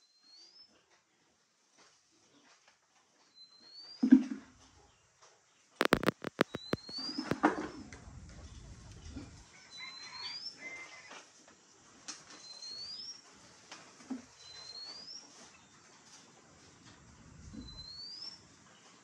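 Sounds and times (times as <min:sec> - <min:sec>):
sharp rattling clicks: 0:05.8 - 0:09.4
faint rising chirp: 0:17.1 - 0:18.5.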